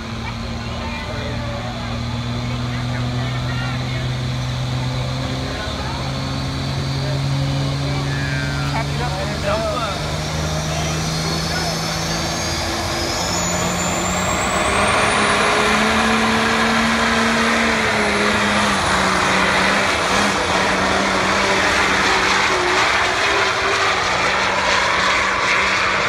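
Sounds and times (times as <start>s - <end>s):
diesel truck engine at full throttle: 0.0s - 26.0s
high turbo whistle: 9.8s - 26.0s.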